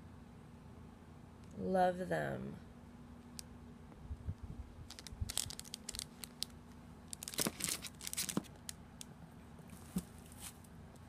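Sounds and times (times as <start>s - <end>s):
plastic packaging crinkling: 4.8s - 8.8s
soft handling thumps: 9.7s - 10.7s.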